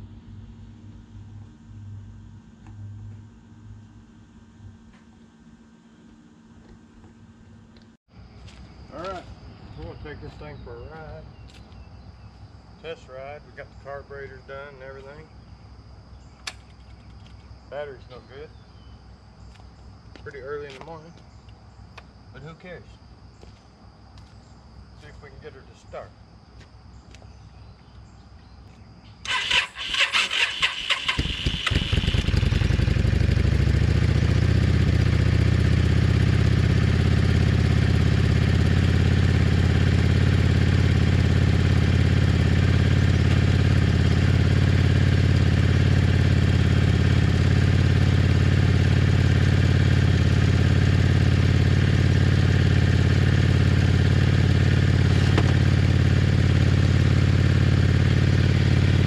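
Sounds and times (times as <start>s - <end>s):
electric starter whine: 29.1s - 59.0s
motorcycle engine idling: 29.2s - 59.0s.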